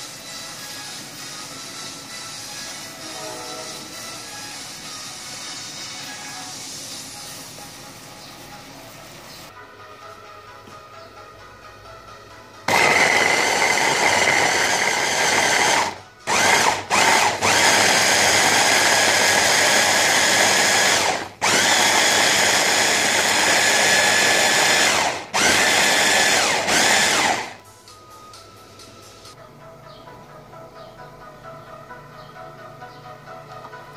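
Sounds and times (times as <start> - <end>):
electric blender whining: 12.7 - 27.6.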